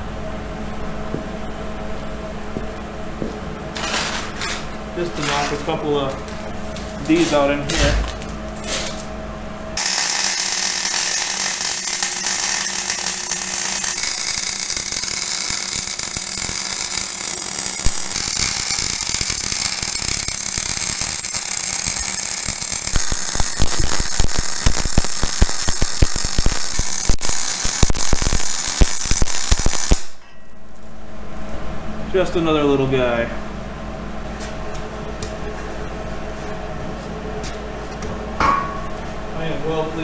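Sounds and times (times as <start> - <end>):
welding arc crackling: 9.8 - 30.2.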